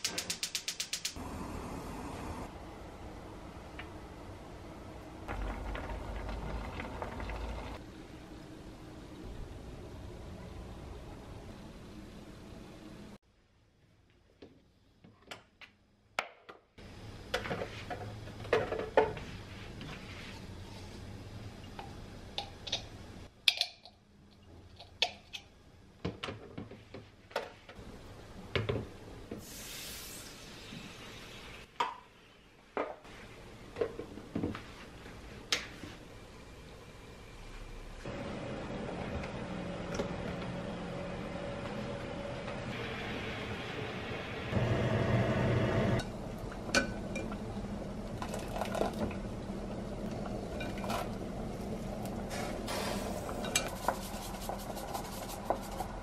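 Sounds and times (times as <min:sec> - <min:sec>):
water pouring: 0:05.3 - 0:07.8.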